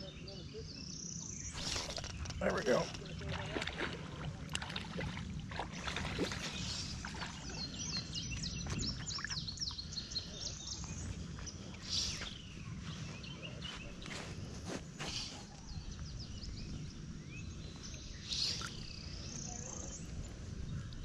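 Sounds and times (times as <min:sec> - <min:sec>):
songbird singing: 0:00.0 - 0:21.0
low outdoor rumble: 0:01.6 - 0:21.0.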